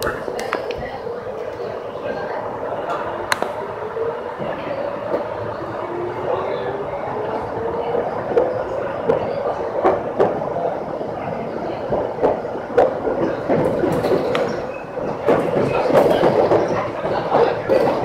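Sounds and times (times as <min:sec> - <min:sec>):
electric train hum: 0:00.0 - 0:18.0
wheels clicking over rail joints: 0:11.9 - 0:18.0.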